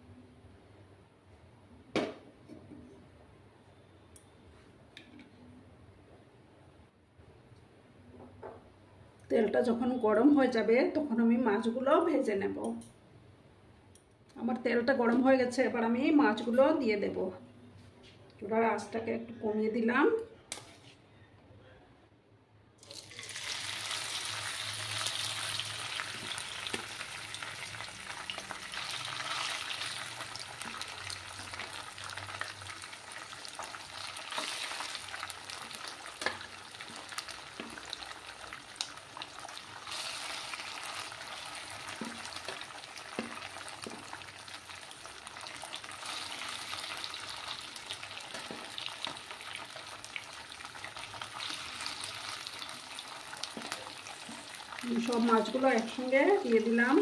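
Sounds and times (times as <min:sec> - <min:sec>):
fish sizzling in hot oil: 0:22.8 - 0:57.0.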